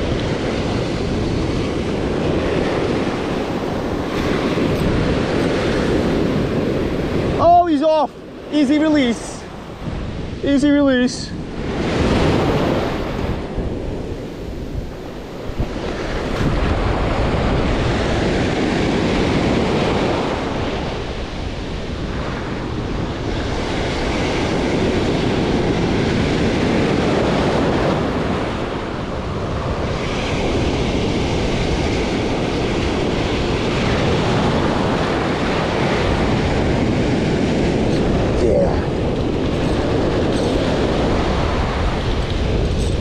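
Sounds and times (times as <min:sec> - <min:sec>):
ocean surf breaking: 0:00.0 - 0:43.0
wind buffeting microphone: 0:00.0 - 0:43.0.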